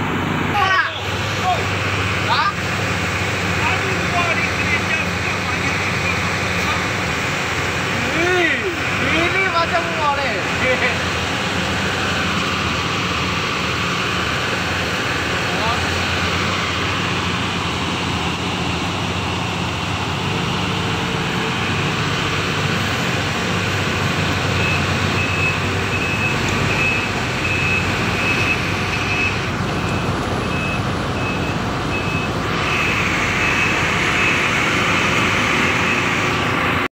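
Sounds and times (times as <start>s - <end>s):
excavator diesel engine running: 0.0s - 36.9s
high warning alarm beeping: 24.0s - 36.4s.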